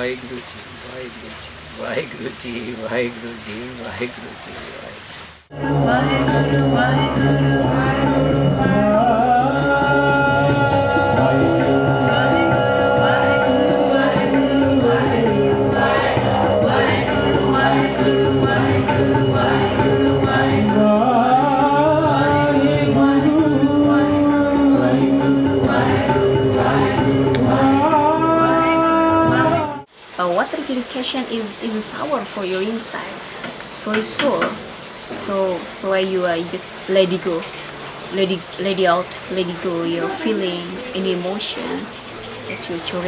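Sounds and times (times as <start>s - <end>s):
group singing devotional chant: 5.5s - 29.9s
instrumental accompaniment: 5.5s - 29.9s.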